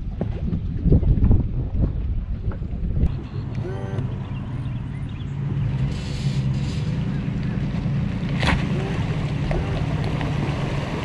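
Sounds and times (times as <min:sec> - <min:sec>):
outboard motor idling: 0:02.4 - 0:11.0.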